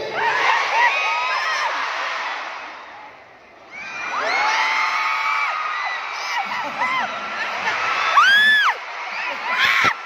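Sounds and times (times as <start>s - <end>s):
people whooping: 3.8s - 10.0s.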